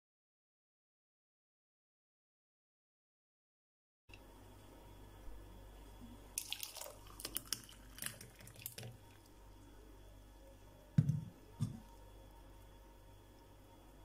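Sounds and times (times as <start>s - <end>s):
juice splashing and dripping: 6.3s - 9.4s.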